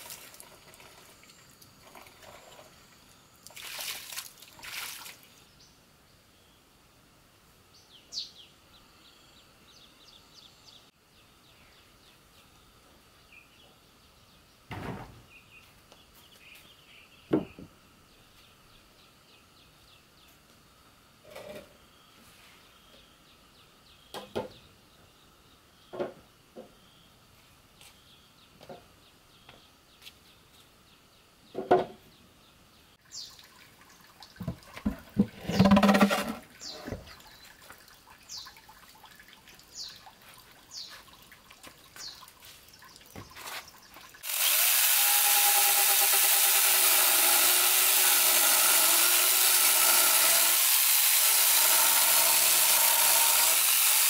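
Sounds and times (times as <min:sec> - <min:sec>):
wooden bench knocking on concrete: 0:34.9 - 0:36.4
electric chainsaw running: 0:44.2 - 0:54.0.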